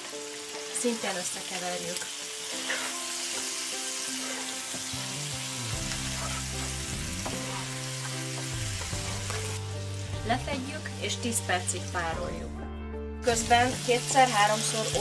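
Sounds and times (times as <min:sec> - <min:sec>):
food sizzling in frying pan: 0:00.0 - 0:12.3, 0:13.2 - 0:15.0
wooden spatula stirring: 0:05.9 - 0:07.7.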